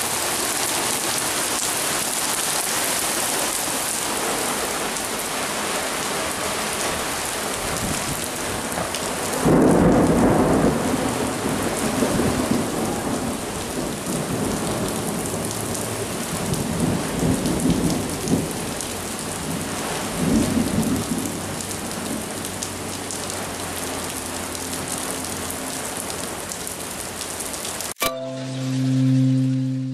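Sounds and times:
heavy rain pouring: 0.0 - 29.9
thunder rumbling: 9.4 - 14.8
short musical tone: 28.0 - 29.9.

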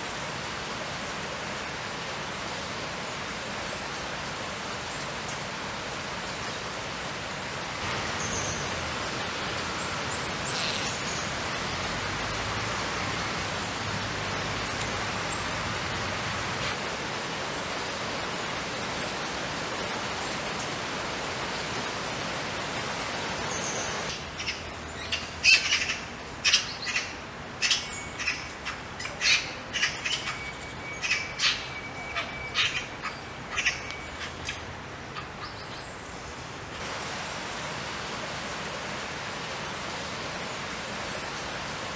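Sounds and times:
magpie calling: 24.4 - 34.6.

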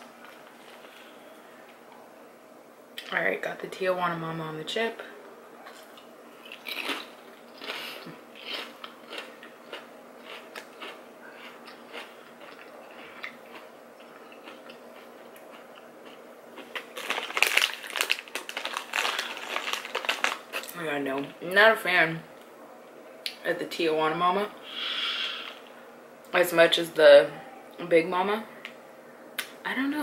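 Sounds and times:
person chewing crunchy chip: 5.9 - 20.7.

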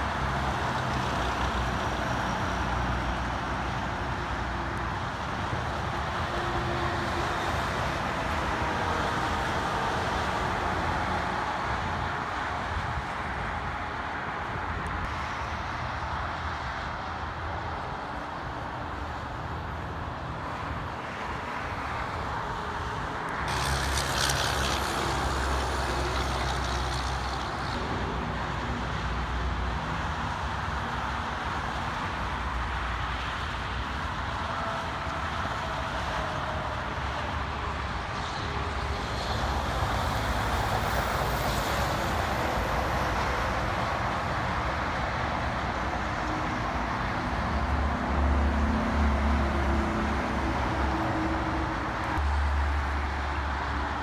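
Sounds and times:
highway traffic: 0.0 - 54.0
truck passing close: 23.0 - 31.2.

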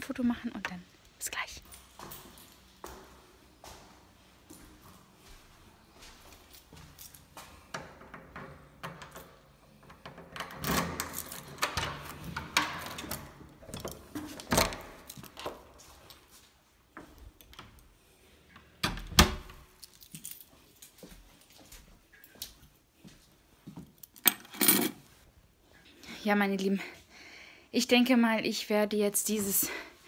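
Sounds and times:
keys jangling: 19.7 - 21.1.

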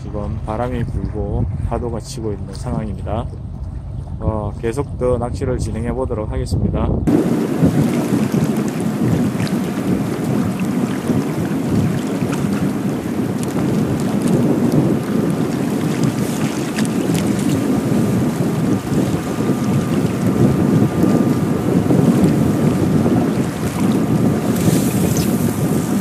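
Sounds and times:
wind buffeting microphone: 0.0 - 26.0
waves washing against rocks: 7.1 - 26.0.

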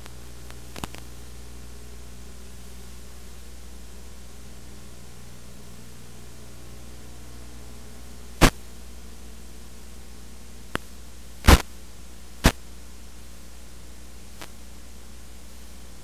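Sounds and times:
sharp crackles: 0.0 - 1.1, 10.7 - 11.7
static hiss: 0.0 - 16.0.

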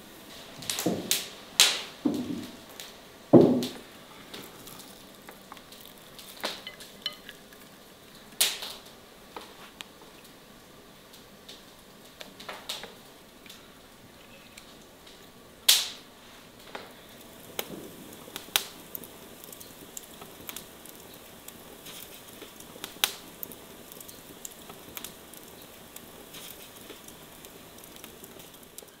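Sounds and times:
low steady hiss: 0.0 - 29.0
sharp clicks and crackles: 3.6 - 10.4, 16.6 - 29.0.

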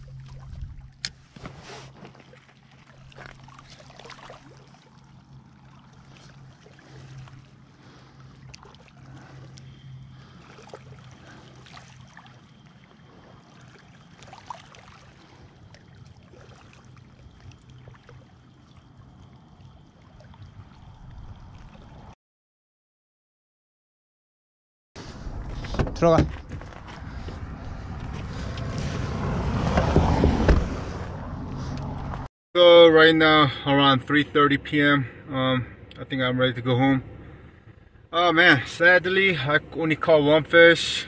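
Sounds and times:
lake water lapping: 0.0 - 22.2, 26.6 - 29.3
steady low hum: 0.0 - 22.2, 33.3 - 40.6.

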